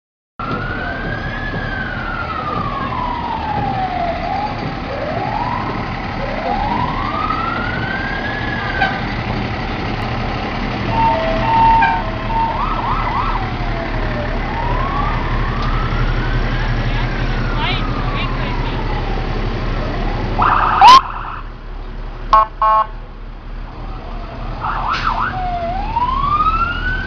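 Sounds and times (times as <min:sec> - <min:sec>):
fire truck sirens wailing: 0:00.4 - 0:27.0
truck engines rumbling: 0:00.4 - 0:27.0
quick warbling siren: 0:10.9 - 0:13.8, 0:20.4 - 0:21.4.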